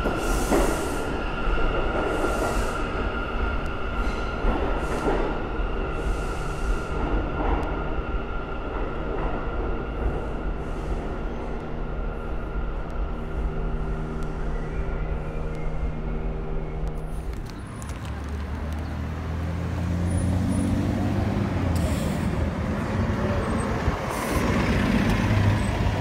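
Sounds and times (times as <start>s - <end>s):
subway train motor hum: 0.0s - 26.0s
air brake hisses: 21.8s - 22.4s.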